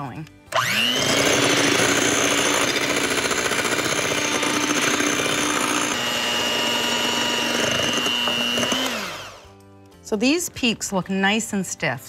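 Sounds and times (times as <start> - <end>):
electric hand mixer running: 0.5 - 9.6.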